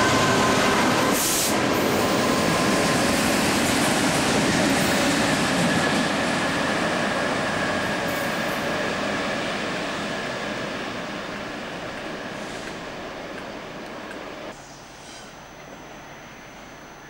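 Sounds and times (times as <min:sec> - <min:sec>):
diesel locomotives rumbling: 0:00.0 - 0:14.6
thin high whine: 0:14.5 - 0:17.0.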